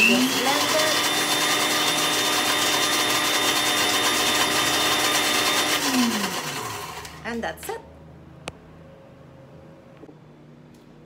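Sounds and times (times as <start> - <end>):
blender running: 0.0 - 7.4.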